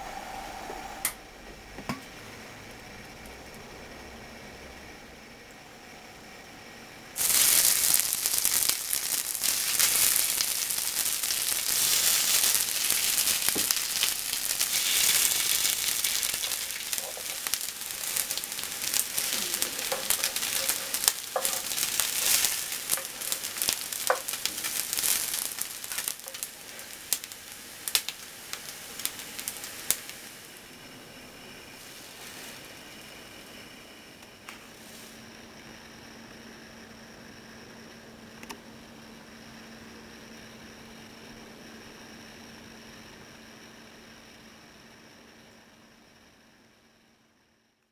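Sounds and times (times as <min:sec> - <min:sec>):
rice balls sizzling in oil: 0:01.6 - 0:38.0
utensil tapping a pan: 0:19.2 - 0:24.7.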